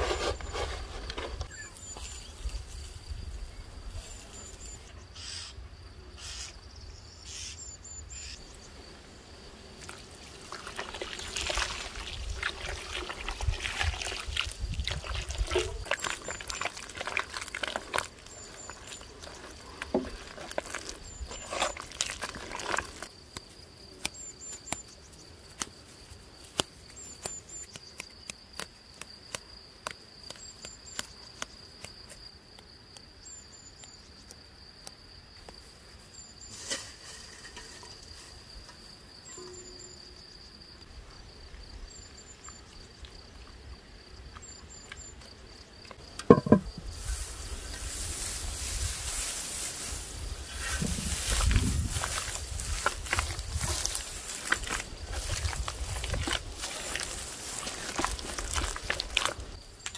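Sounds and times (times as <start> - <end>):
insect trill: 0.2 - 59.9
bird chirps: 1.5 - 2.4
wet mud squelching: 10.4 - 23.1, 48.3 - 59.9.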